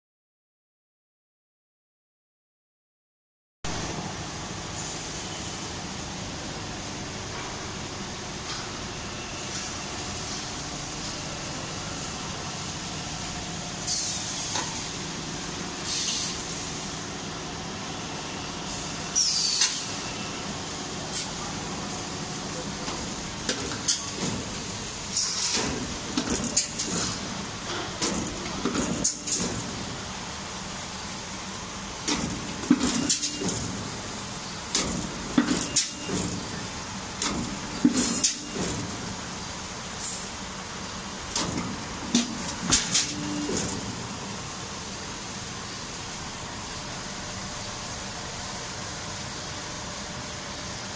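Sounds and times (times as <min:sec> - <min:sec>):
hydraulic hiss bursts: 0:13.8 - 0:15.0, 0:15.8 - 0:16.9, 0:18.7 - 0:20.0
machine clanking: 0:22.8 - 0:29.8.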